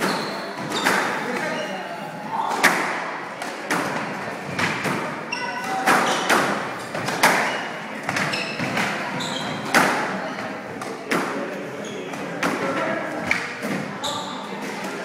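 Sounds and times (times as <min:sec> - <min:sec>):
shoes squeaking on wooden floor: 0:00.0 - 0:01.9, 0:05.3 - 0:10.6, 0:14.0 - 0:14.4
squash ball cracking off rackets: 0:04.6 - 0:09.0.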